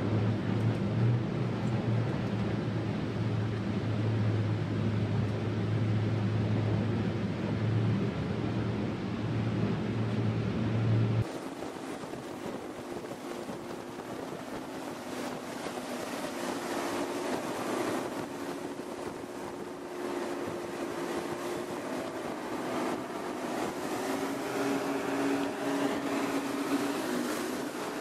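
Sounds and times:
boat engines droning: 0.0 - 28.0
water rushing: 0.0 - 28.0
wind rushing: 6.8 - 28.0.

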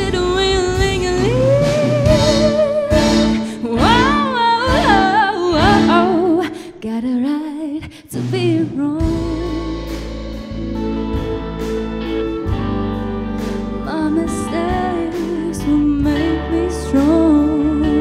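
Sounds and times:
woman singing: 0.0 - 10.5, 13.7 - 18.0
string orchestra: 9.9 - 18.0.

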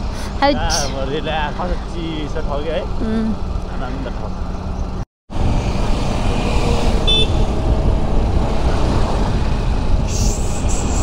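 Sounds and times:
wind and road noise: 0.0 - 11.0
high horn toot: 6.4 - 7.5
hiss: 10.0 - 11.0.

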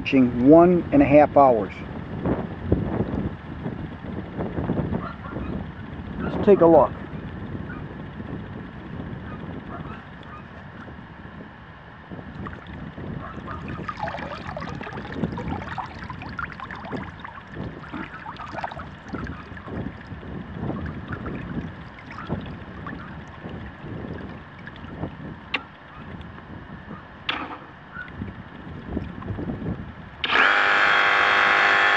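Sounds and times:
water sloshing in plastic tub: 12.4 - 25.2
water dripping into tub: 13.5 - 20.2, 20.8 - 25.0.

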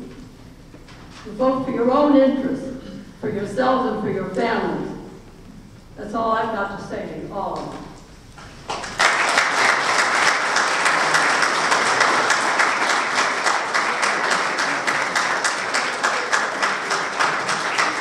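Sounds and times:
crowd applauding: 8.5 - 18.0.

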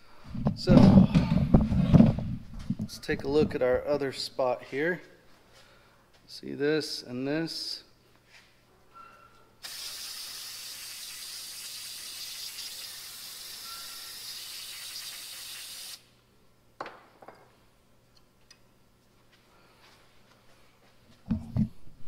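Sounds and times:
aerosol spray can hissing: 9.6 - 16.0.

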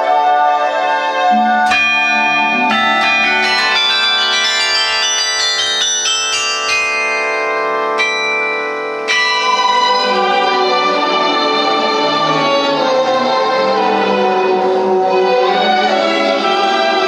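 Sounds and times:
electronic string accompaniment: 0.0 - 6.8, 9.0 - 17.0
carillon bells ringing: 1.3 - 14.2.

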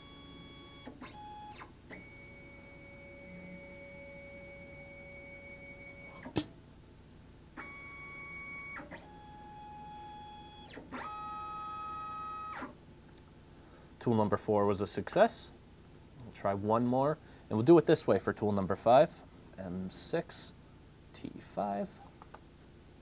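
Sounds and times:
sharp click: 6.2 - 6.6.

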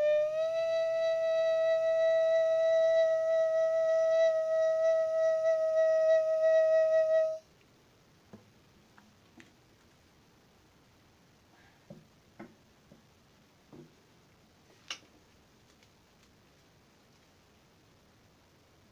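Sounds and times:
faint clicks: 14.8 - 16.4.

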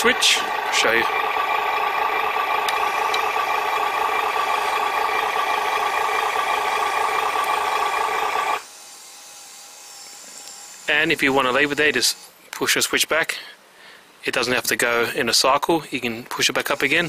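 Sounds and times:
simulated truck engine from speaker: 0.0 - 8.6.

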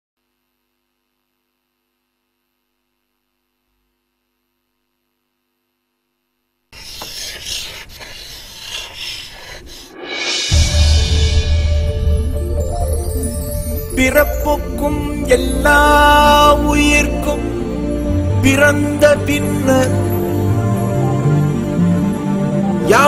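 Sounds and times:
dry scratching and rubbing: 6.8 - 10.4
whoosh: 9.8 - 13.2
deep bass note: 10.5 - 15.3.

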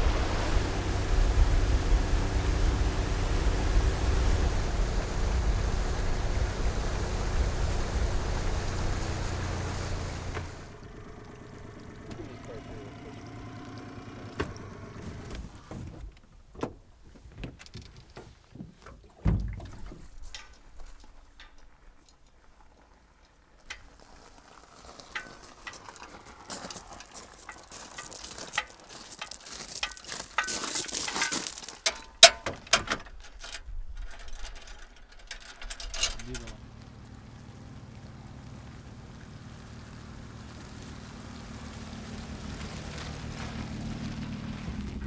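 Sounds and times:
hiss: 0.0 - 10.7
objects knocking and rattling: 25.0 - 36.5.

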